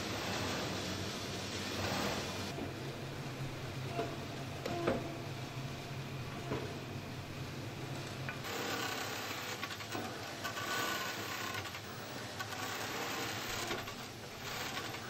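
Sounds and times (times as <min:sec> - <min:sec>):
low machine hum: 0:00.0 - 0:15.0
sewing machine stitching: 0:08.4 - 0:15.0.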